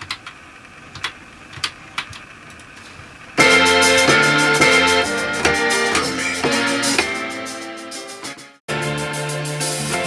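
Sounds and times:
electric piano chords: 3.4 - 8.4.

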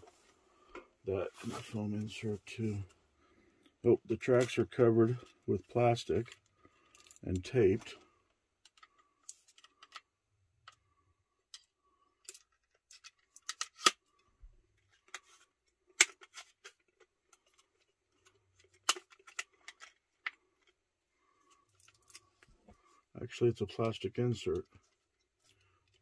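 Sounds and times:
plastic insert clicking and crinkling: 8.6 - 10.8, 11.5 - 20.8.

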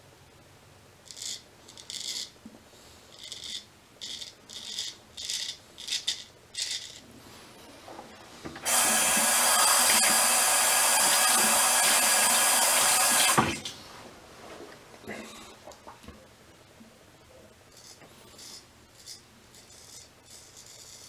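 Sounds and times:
sink tap running: 8.6 - 13.6
razor scraping stubble: 8.7 - 13.4.

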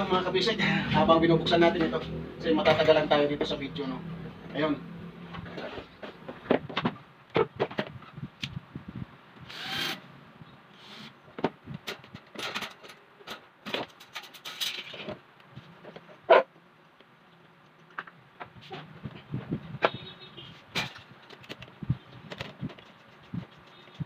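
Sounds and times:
fan parts clattering: 0.0 - 3.6, 11.3 - 16.3, 20.6 - 24.0.

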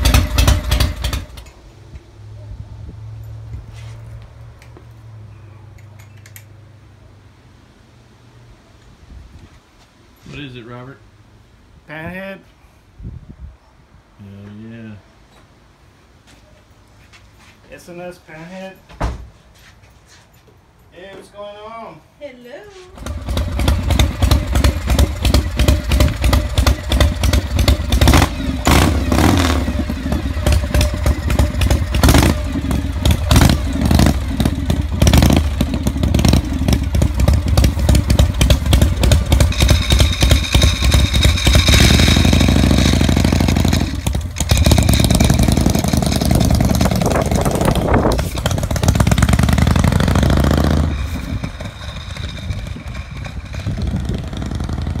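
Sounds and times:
motorcycle engine revving: 0.0 - 1.5, 23.0 - 55.0.

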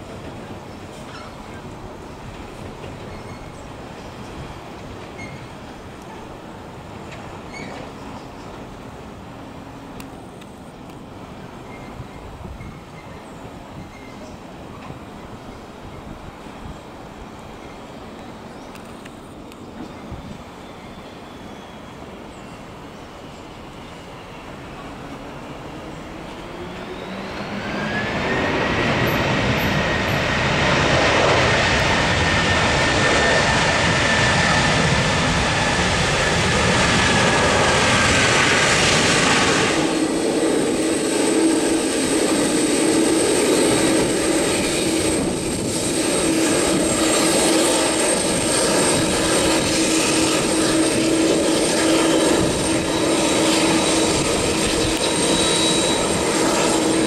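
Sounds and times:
jet engines roaring: 23.7 - 57.0
turbine whine: 23.8 - 57.0.

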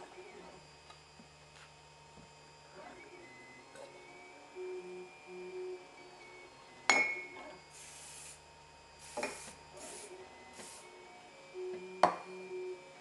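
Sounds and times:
stepper motor tones: 2.2 - 13.0
aerosol spray hissing: 7.7 - 8.4, 9.0 - 10.8.

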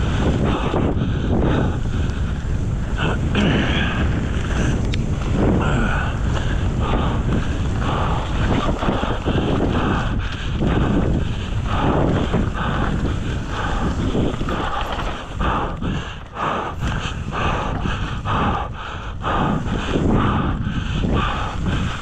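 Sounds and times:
bike rolling on dirt trail: 0.0 - 22.0
wind buffeting microphone: 0.0 - 22.0.

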